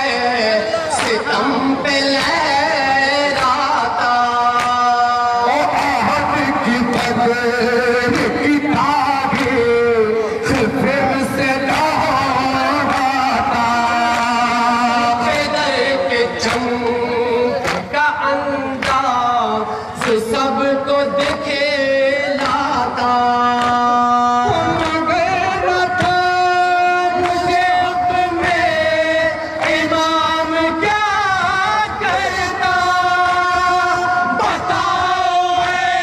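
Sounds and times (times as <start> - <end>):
men chanting a lament: 0.0 - 36.0
hands slapping chests: 17.6 - 17.9, 18.8 - 19.1.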